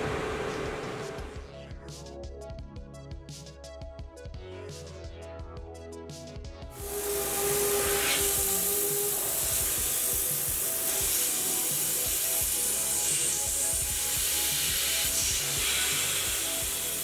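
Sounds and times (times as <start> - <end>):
milling tool cutting metal: 6.8 - 13.4
coolant spray hissing: 6.8 - 17.0.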